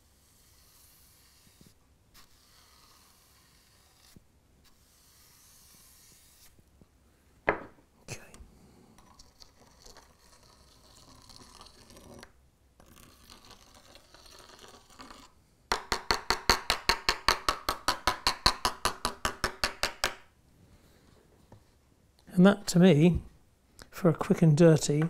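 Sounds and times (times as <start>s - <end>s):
spoon scraping grit: 0.0s - 6.5s, 9.0s - 12.2s, 12.8s - 15.4s.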